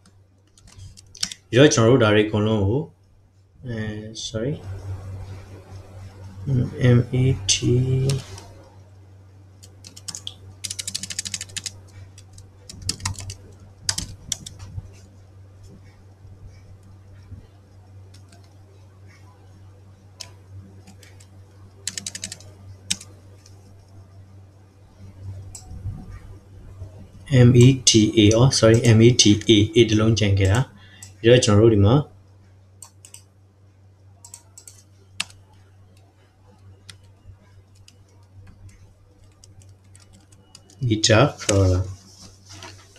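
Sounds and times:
low steady hum: 0:00.0 - 0:42.9
computer keyboard typing: 0:00.5 - 0:01.5, 0:09.6 - 0:14.7, 0:18.1 - 0:18.6, 0:20.2 - 0:24.0, 0:27.6 - 0:29.6, 0:32.8 - 0:33.3, 0:34.2 - 0:41.8.

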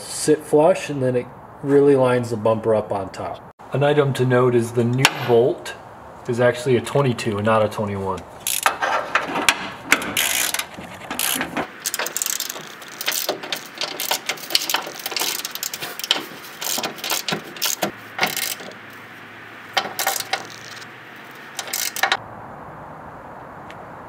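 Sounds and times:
socket ratchet clicking: 0:08.5 - 0:08.8, 0:09.9 - 0:18.9, 0:19.8 - 0:22.2.

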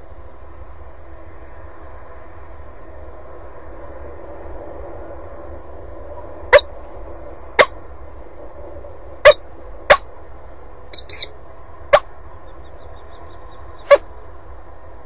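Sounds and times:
faint steady hum: 0:00.0 - 0:15.0
falcon calls: 0:09.2 - 0:10.0, 0:11.0 - 0:11.3
faint higher chirps: 0:10.9 - 0:14.2.

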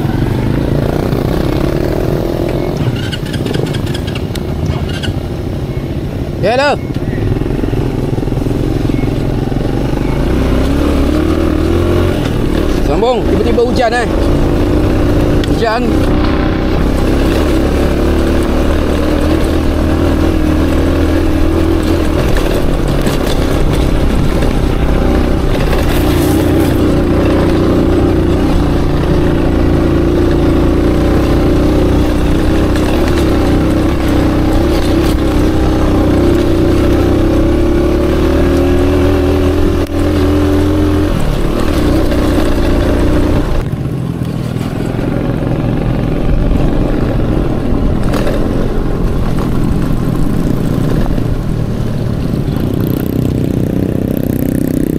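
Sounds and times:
motorcycle engine revving under load: 0:00.0 - 0:05.2, 0:07.0 - 0:54.9.

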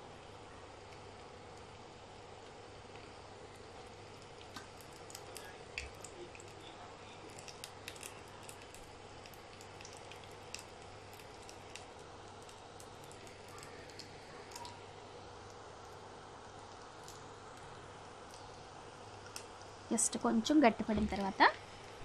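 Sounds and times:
dough sizzling in hot oil: 0:00.0 - 0:22.0.

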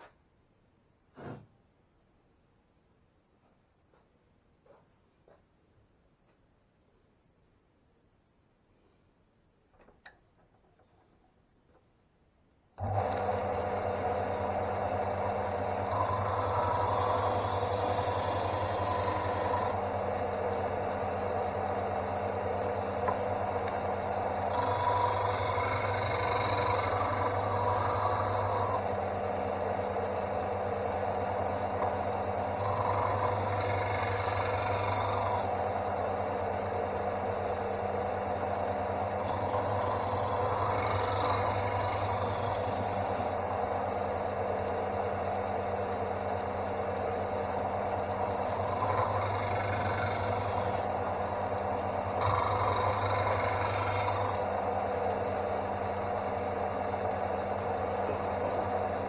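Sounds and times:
sander motor hum: 0:12.8 - 0:59.0
wood rasping on sanding disc: 0:15.8 - 0:19.8, 0:24.4 - 0:28.8, 0:32.6 - 0:35.6, 0:39.2 - 0:43.4, 0:48.2 - 0:50.9, 0:52.1 - 0:54.5.

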